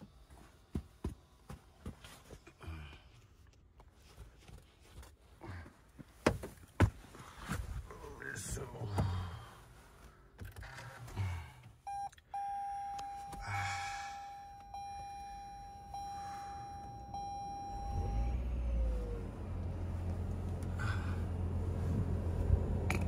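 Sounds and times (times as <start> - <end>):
car engine starting and running: 9.8 - 23.0
car electronic warning beep: 11.8 - 19.3.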